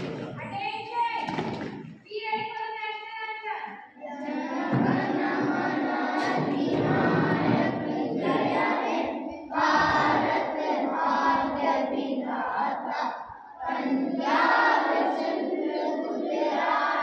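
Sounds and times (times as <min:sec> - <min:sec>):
children singing in unison: 0:04.0 - 0:17.0.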